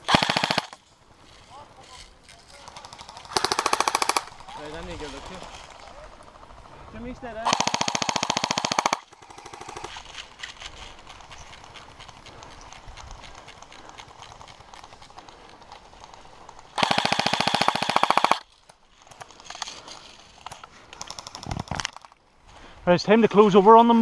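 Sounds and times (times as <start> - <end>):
airsoft gun full-auto burst: 0.0 - 0.8, 2.7 - 4.6, 7.4 - 10.0, 16.8 - 18.4
footsteps through long grass: 0.8 - 3.0, 4.2 - 6.4, 9.8 - 16.8, 18.4 - 21.0.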